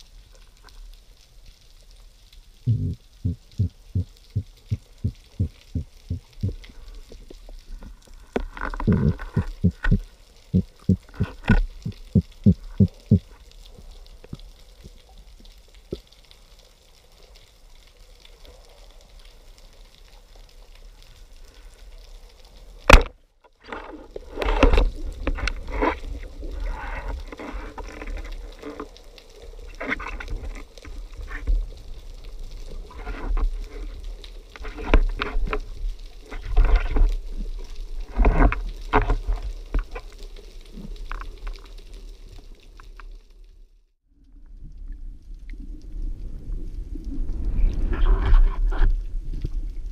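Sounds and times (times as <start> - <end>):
speargun firing crack underwater: 22.9 - 23.1.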